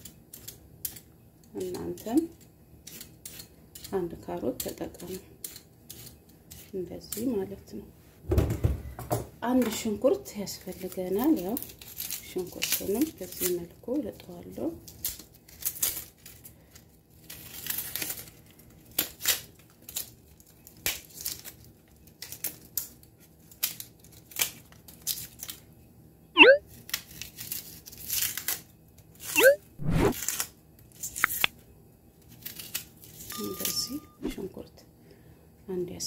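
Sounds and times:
onion skin crackling and tearing: 0:10.6 - 0:13.7, 0:14.8 - 0:25.6, 0:26.7 - 0:29.4, 0:30.0 - 0:31.5, 0:32.2 - 0:33.3.

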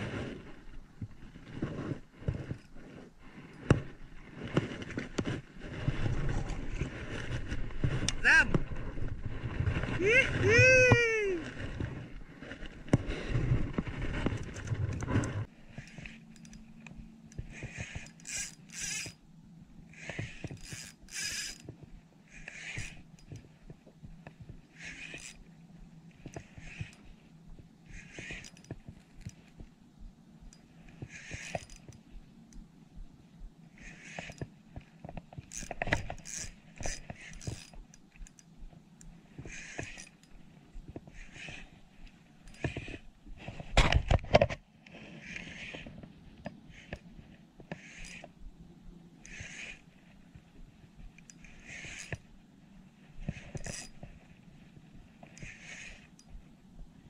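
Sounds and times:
fishing reel drag buzzing: 0:17.5 - 0:19.2, 0:20.0 - 0:21.7, 0:22.4 - 0:23.4, 0:24.8 - 0:25.4, 0:28.0 - 0:29.4, 0:35.5 - 0:38.5, 0:47.7 - 0:48.3, 0:51.3 - 0:52.2.

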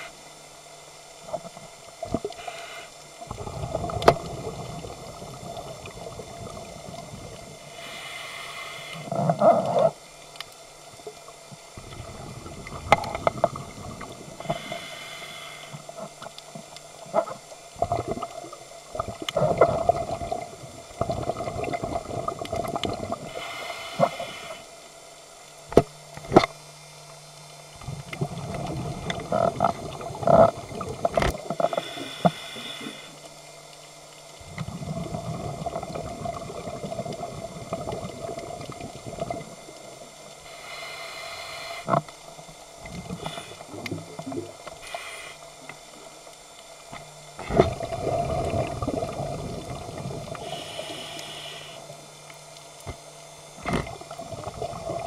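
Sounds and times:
regulator inhalation hiss: 0:02.3 - 0:03.2, 0:07.6 - 0:09.2, 0:14.4 - 0:16.1, 0:23.2 - 0:24.8, 0:31.6 - 0:33.3, 0:40.4 - 0:42.0, 0:43.1 - 0:43.8, 0:44.6 - 0:46.1, 0:50.3 - 0:52.1
bubbling exhalation underwater: 0:17.8 - 0:23.3, 0:28.2 - 0:31.5, 0:34.5 - 0:40.0, 0:47.4 - 0:50.4, 0:53.6 - 0:55.0.

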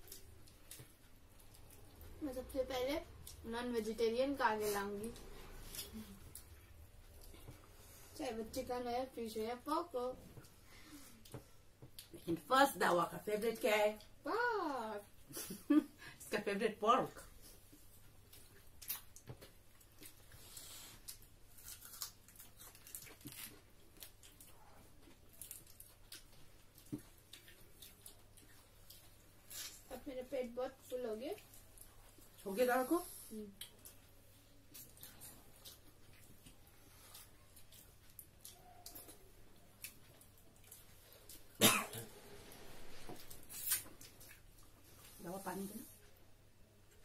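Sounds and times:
chewing: 0:00.0 - 0:02.2, 0:04.6 - 0:07.9, 0:17.4 - 0:30.0, 0:33.5 - 0:42.1, 0:43.1 - 0:45.2
clicks and rustles of eating: 0:00.0 - 0:02.2, 0:17.5 - 0:30.0, 0:33.5 - 0:41.6
person coughing: 0:41.6 - 0:42.1.

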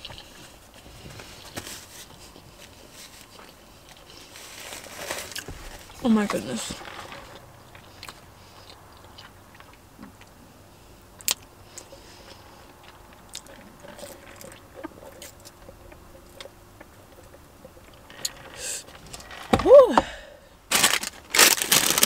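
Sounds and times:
chewing and swallowing: 0:00.0 - 0:04.5, 0:06.8 - 0:19.0.

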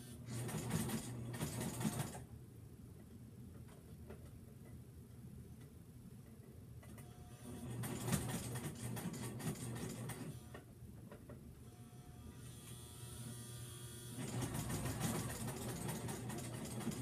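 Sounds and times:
sewing machine stitching: 0:00.3 - 0:02.2, 0:07.5 - 0:10.4, 0:14.1 - 0:17.0.

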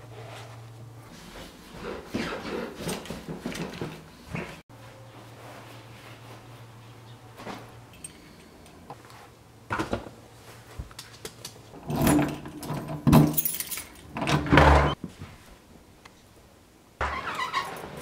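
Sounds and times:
keys jangling: 0:12.5 - 0:14.1.

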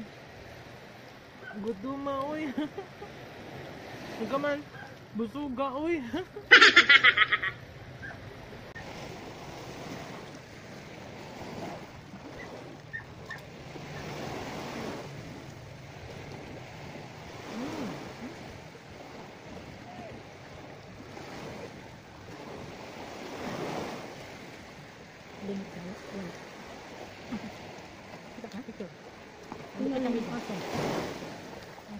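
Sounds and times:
sea surf washing: 0:00.0 - 0:31.9.

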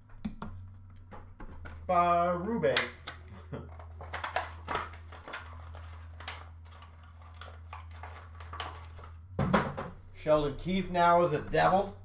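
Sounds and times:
low hum: 0:00.0 - 0:12.0
trading cards clicking and rustling: 0:02.7 - 0:09.2.

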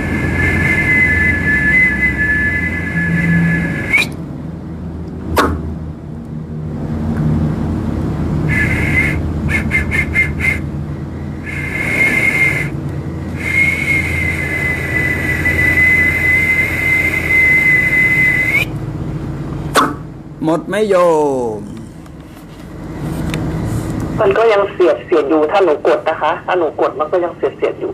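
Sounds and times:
high whistle: 0:00.0 - 0:04.2, 0:08.5 - 0:10.7, 0:11.4 - 0:18.8
steady low hum: 0:00.0 - 0:27.9.

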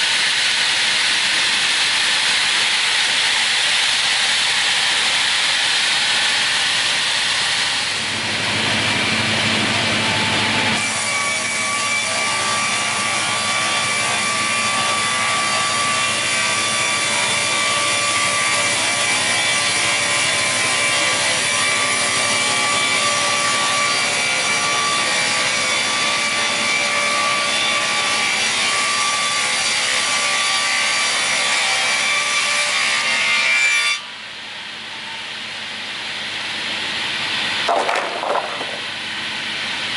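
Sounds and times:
saw ripping wood with whine: 0:37.4 - 0:39.9.

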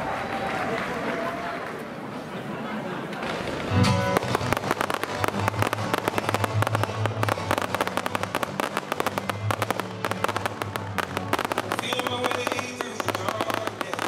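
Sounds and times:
fireworks crackling pops: 0:03.1 - 0:14.0.

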